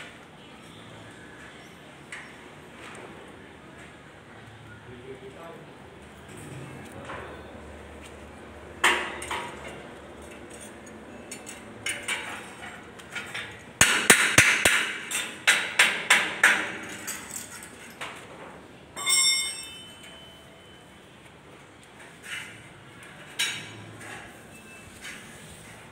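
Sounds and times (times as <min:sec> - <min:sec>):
metal knocks on steel machinery: 0:13.8 - 0:17.0
ringing metal clang: 0:19.0 - 0:20.7.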